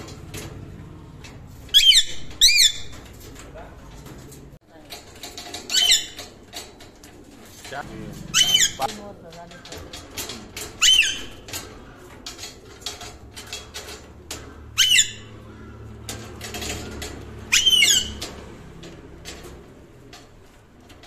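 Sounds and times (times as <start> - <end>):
parakeet screeching: 1.7 - 2.8, 8.3 - 8.9, 10.8 - 11.3, 14.7 - 15.3, 17.5 - 18.2.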